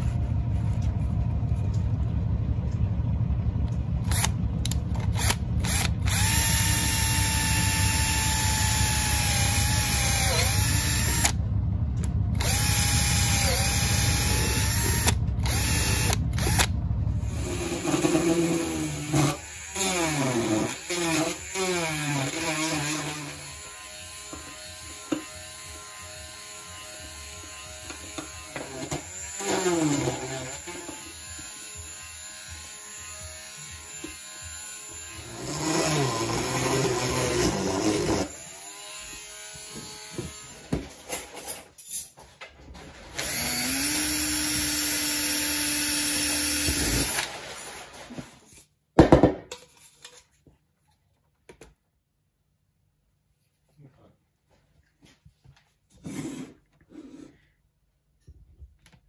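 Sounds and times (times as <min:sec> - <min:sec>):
drill spinning steadily: 0:03.5 - 0:40.8, 0:43.2 - 0:47.3
rotary tool drilling: 0:04.0 - 0:11.4, 0:12.3 - 0:41.5, 0:43.1 - 0:47.8
cordless drill in short bursts: 0:43.2 - 0:47.8.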